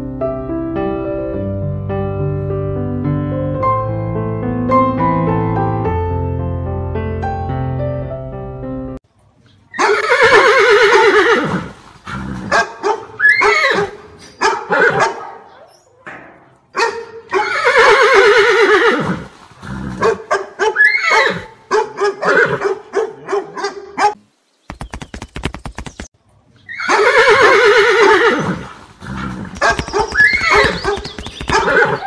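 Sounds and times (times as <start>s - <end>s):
horse whinnying: 9.7s - 15.9s, 17.3s - 21.6s, 22.2s - 22.7s, 26.7s - 32.0s.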